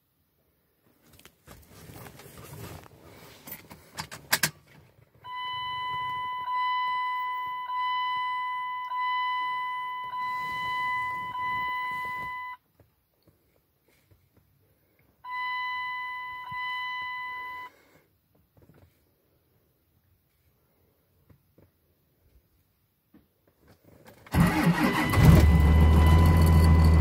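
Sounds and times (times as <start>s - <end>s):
dashboard warning chime: 5.3s - 12.6s, 15.3s - 17.8s, 24.8s - 27.0s.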